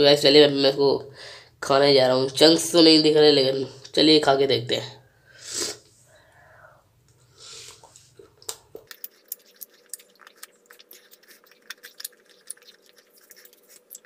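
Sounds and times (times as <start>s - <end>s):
mouth clicks and crunches: 7.7s - 14.0s
person chewing chocolate bar: 7.7s - 14.0s.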